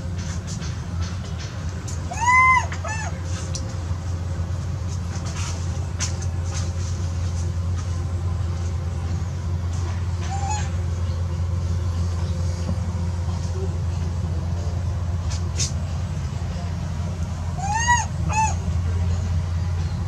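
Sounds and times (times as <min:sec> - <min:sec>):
steady low hum: 0:00.0 - 0:20.0
baby monkey cry: 0:02.1 - 0:03.1, 0:10.3 - 0:10.8, 0:17.6 - 0:18.6.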